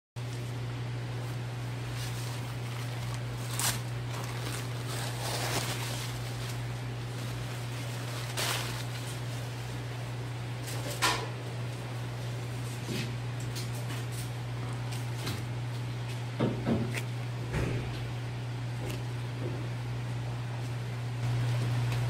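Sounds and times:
towel rustling: 1.1 - 10.1.

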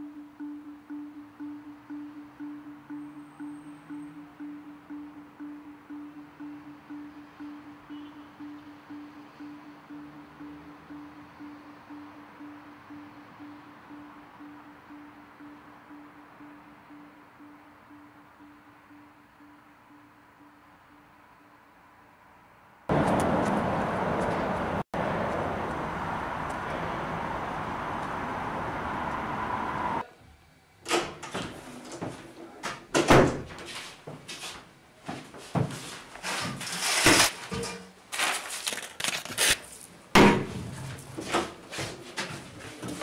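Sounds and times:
door opening and shutting: 30.8 - 33.7.

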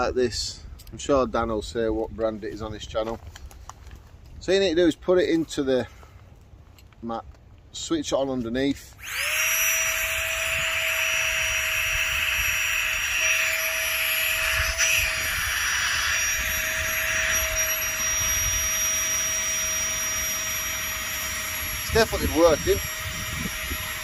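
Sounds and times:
electric air pump whining: 8.8 - 24.0.

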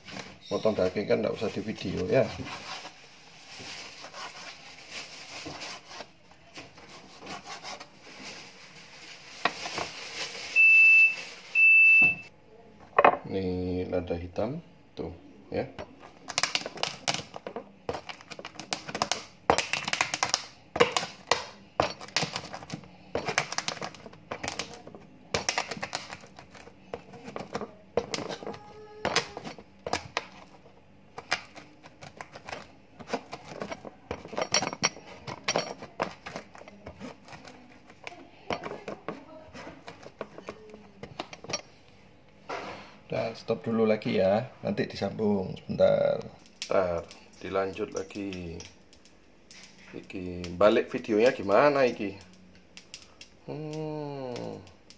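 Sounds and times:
peppercorns crunching under pestle: 15.8 - 41.8, 46.0 - 54.9.

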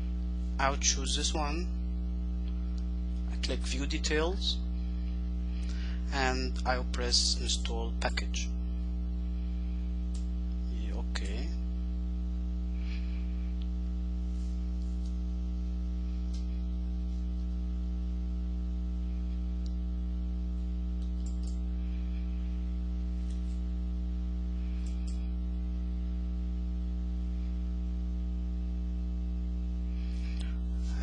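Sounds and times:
electrical mains hum: 0.0 - 31.0
faint clicks: 21.0 - 21.6.

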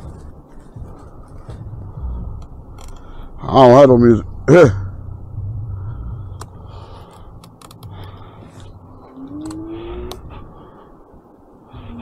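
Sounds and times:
low street rumble: 0.0 - 12.0
rising whine: 1.2 - 12.0
sharp clicks: 6.4 - 8.2, 9.3 - 10.3.

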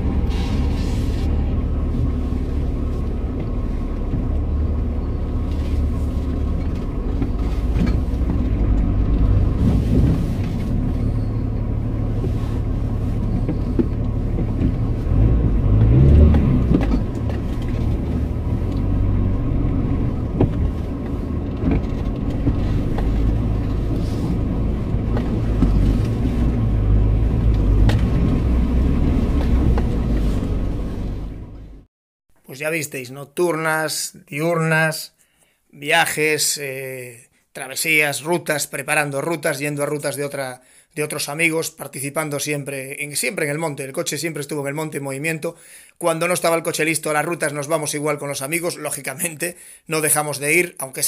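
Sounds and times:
off-road engine running: 0.0 - 31.9.

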